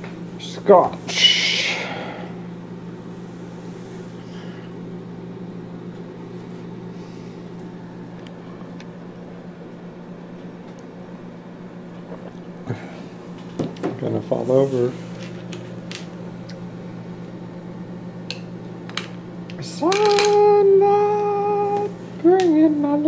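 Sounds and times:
microwave oven humming: 0.0s - 23.0s.

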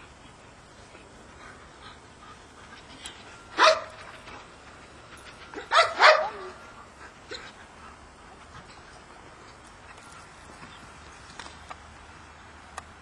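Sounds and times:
dog barking: 3.6s - 4.0s, 5.7s - 6.6s.

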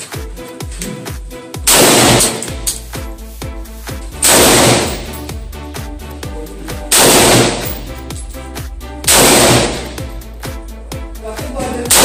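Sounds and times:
music with steady beat: 0.0s - 12.0s
rifle shots: 1.7s - 2.5s, 4.2s - 5.1s, 6.9s - 7.9s, 9.1s - 10.0s.

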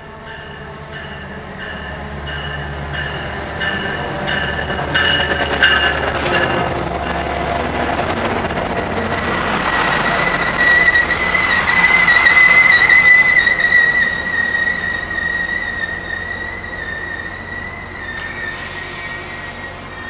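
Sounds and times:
train cars rumbling: 0.0s - 20.0s
train brakes squealing: 9.6s - 20.0s.

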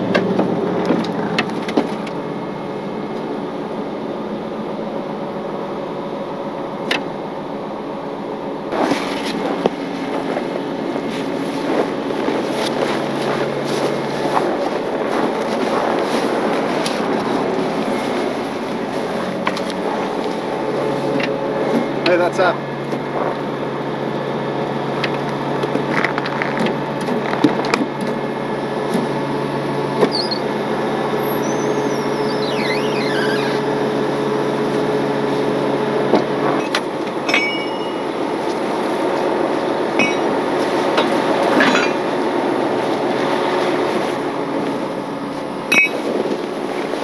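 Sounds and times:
heavy truck engine running: 0.0s - 47.0s
metal squeak: 30.0s - 33.9s, 45.7s - 46.0s
metal clinks and knocks: 37.2s - 38.2s, 41.0s - 42.0s.

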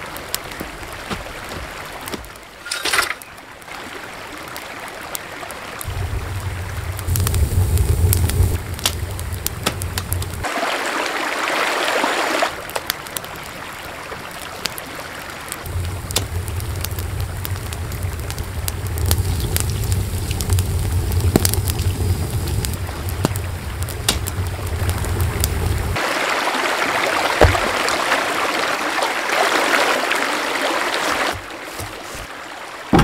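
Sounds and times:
wood fire crackling and popping: 4.5s - 10.5s, 12.5s - 13.7s, 14.3s - 26.0s, 27.4s - 28.0s
low steady rumble: 5.8s - 10.4s, 15.7s - 26.0s.

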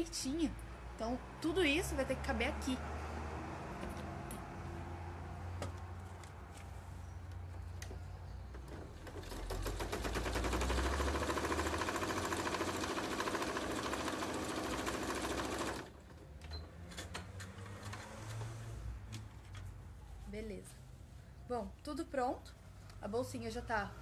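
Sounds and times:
sewing machine stitching: 8.9s - 16.0s.

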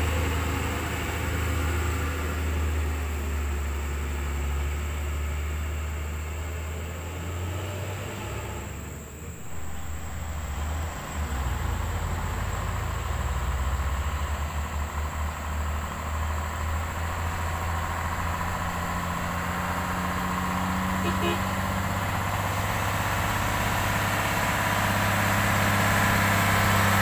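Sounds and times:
truck diesel engine rumble: 0.0s - 27.0s
thin whine: 9.2s - 13.0s.

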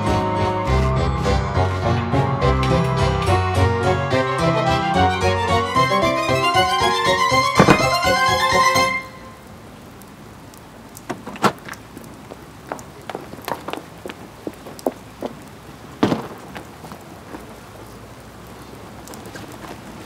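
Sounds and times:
rain hissing: 0.0s - 20.0s
loud thump: 7.6s - 8.2s
drops ticking on hard surfaces: 10.5s - 17.1s.

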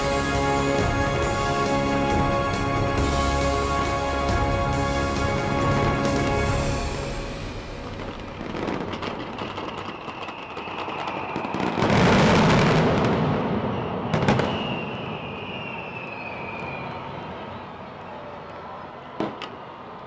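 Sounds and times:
fireworks crackling and banging: 0.0s - 17.3s
sharp crack: 7.4s - 11.4s
thin high whistle: 9.4s - 11.7s, 13.7s - 18.7s.

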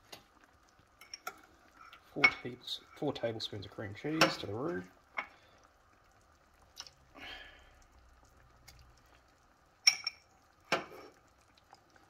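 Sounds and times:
metal clinking on bowl: 1.0s - 2.5s, 9.8s - 10.3s.

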